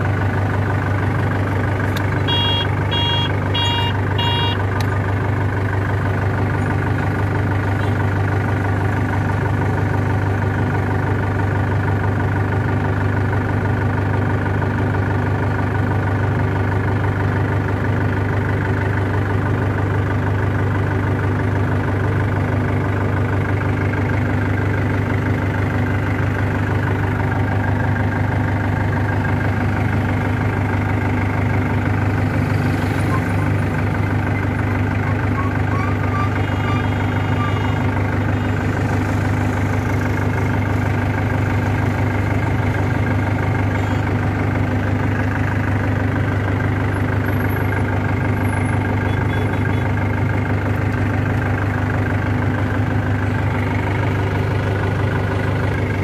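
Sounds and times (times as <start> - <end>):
diesel engine idling: 0.0 - 56.0
short electronic beeps: 2.2 - 4.6, 49.0 - 49.9.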